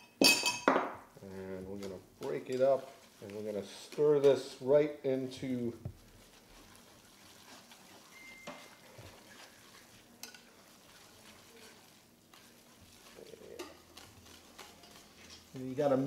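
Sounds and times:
whisk scraping swish: 1.8s - 16.0s
whisk clicking against metal pot: 6.3s - 16.0s.

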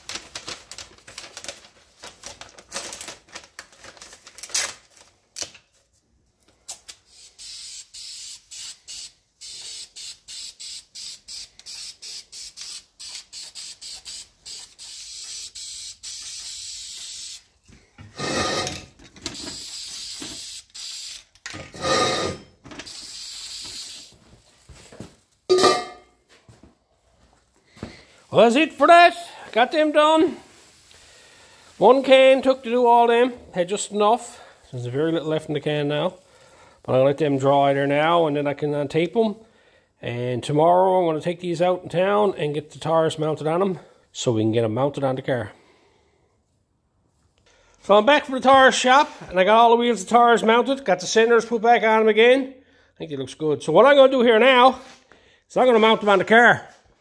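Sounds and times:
paper and tape crinkling: 0.0s - 7.0s, 22.8s - 25.4s, 27.8s - 32.9s
aerosol spray can hissing: 7.1s - 17.5s, 19.4s - 21.3s, 22.9s - 24.2s.

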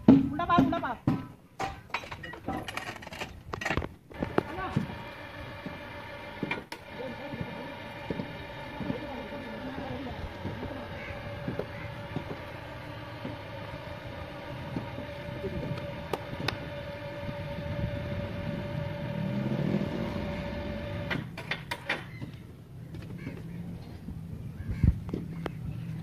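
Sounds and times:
metal clanks: 0.0s - 4.8s
machinery whine and rumble: 2.7s - 23.6s.

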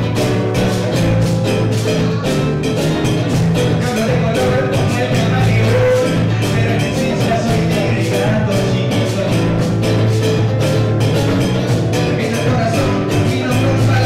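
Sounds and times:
nylon-string acoustic guitar: 0.0s - 14.0s
steady drum beat: 0.0s - 14.0s
man singing: 3.6s - 10.8s, 11.4s - 14.0s.

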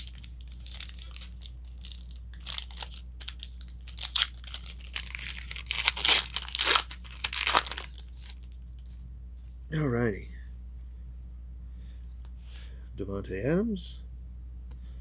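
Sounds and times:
plastic crinkling and rustling: 0.0s - 8.9s.

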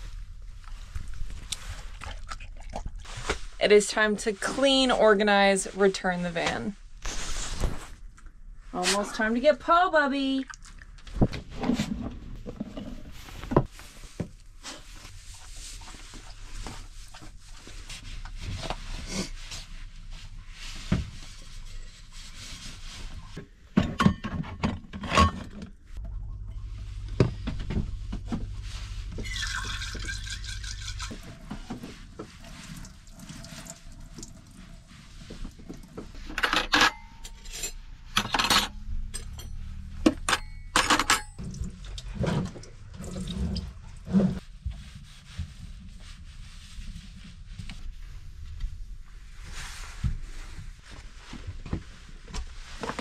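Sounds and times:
low hum: 25.9s - 36.0s
running water: 29.1s - 34.8s.

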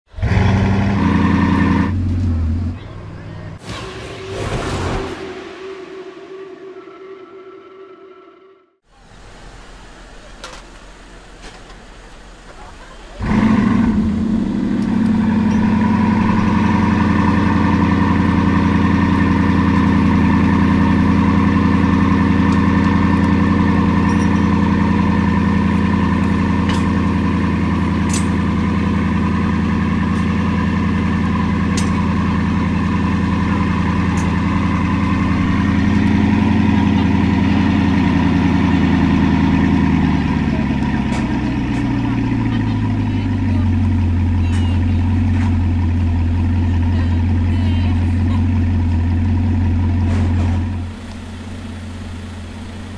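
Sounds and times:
car engine fast idle: 48.1s - 52.9s.

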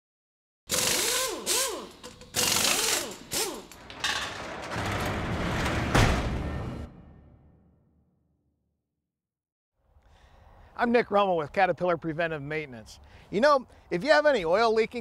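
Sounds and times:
mechanical clanking and ratcheting: 0.7s - 6.3s.

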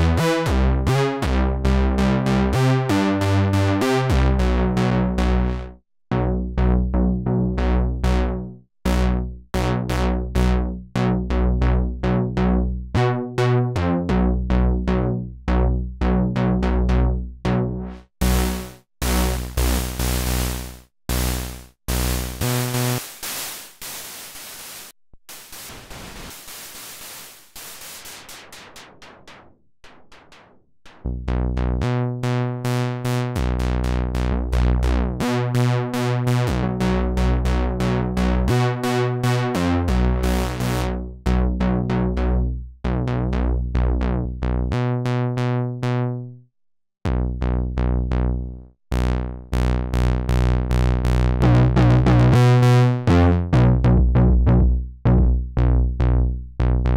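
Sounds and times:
synthesizer bass notes: 0.0s - 26.2s, 26.8s - 46.4s, 47.1s - 56.9s
synthesizer pulsing noise: 18.2s - 31.2s.

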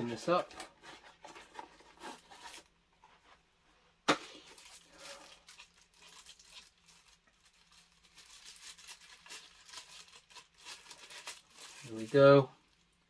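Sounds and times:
plastic rustling: 4.1s - 13.0s.

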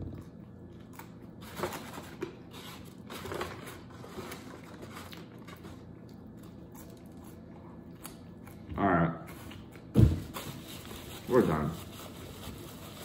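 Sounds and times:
paper rustling as fries are picked: 10.4s - 13.0s.

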